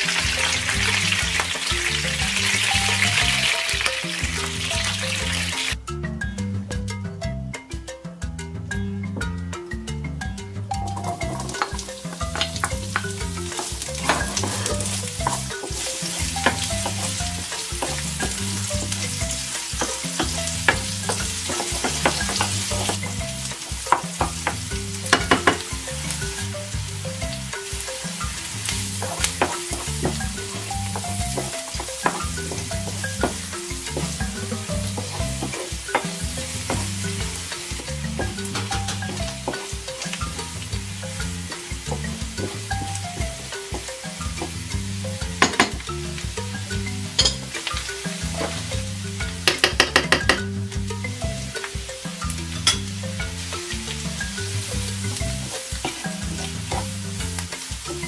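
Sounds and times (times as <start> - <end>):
onions sizzling in hot oil: 0.0 - 5.8, 10.9 - 58.0
light background music: 0.0 - 58.0
wooden spoon scraping a pan: 11.0 - 23.2.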